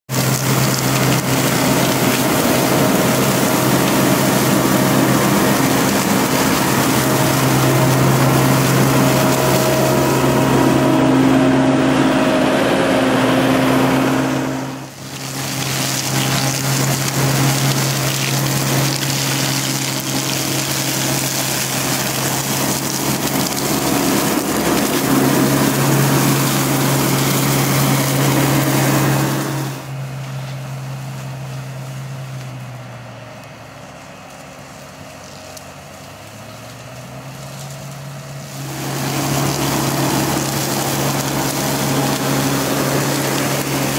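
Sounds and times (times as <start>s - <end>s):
diesel engine under load: 0.0s - 43.9s
flail mower shredding brush: 0.0s - 43.9s.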